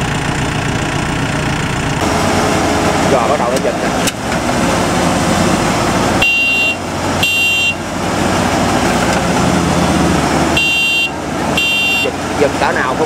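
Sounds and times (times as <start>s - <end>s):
diesel engines running hard: 0.0s - 13.0s
short high beeps: 6.2s - 7.8s, 10.6s - 12.1s.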